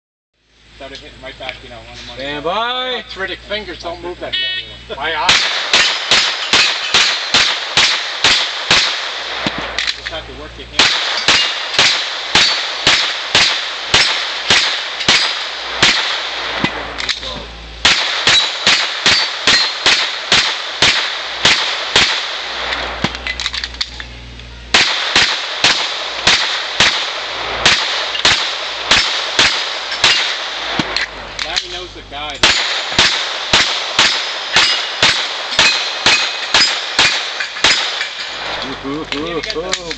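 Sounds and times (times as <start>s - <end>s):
steel targets ringing: 5.2s - 8.9s, 10.8s - 16.1s, 17.1s - 22.3s, 24.7s - 39.9s
rapid pistol fire: 5.2s - 10.0s, 10.8s - 23.5s, 24.7s - 31.8s, 32.4s - 38.6s.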